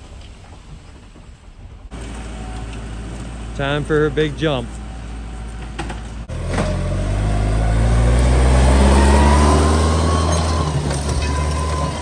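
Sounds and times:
pickup truck engine revving: 0:06.2 - 0:12.0.

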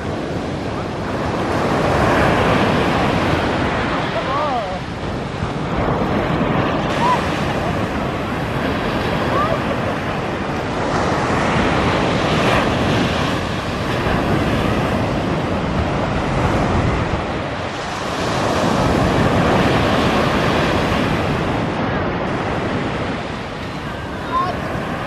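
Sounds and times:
waves washing up a beach: 0:00.0 - 0:25.0
wind rumble on microphone: 0:00.0 - 0:25.0.

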